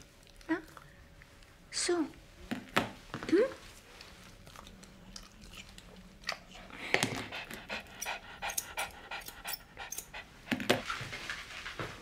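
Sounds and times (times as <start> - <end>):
small dog panting: 6.3 - 10.8.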